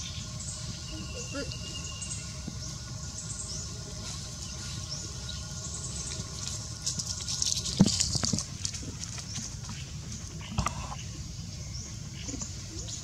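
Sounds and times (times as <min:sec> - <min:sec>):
faint high chirps: 0:00.0 - 0:06.6
low steady rumble: 0:00.0 - 0:13.0
dry crackling and rustling: 0:04.0 - 0:10.5.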